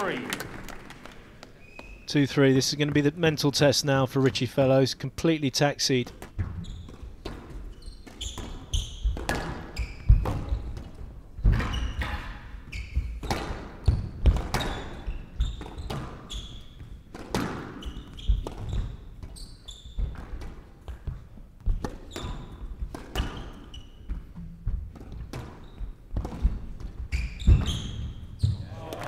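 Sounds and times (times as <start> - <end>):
shoes squeaking on wooden floor: 1.5 - 3.1, 6.2 - 29.0
squash ball cracking off rackets: 6.1 - 12.4.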